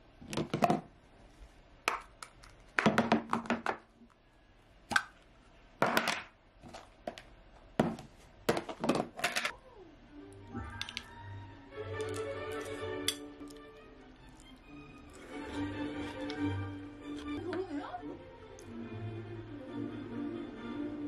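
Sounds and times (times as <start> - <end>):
spoon clinking in ceramic bowl: 12.6 - 13.3.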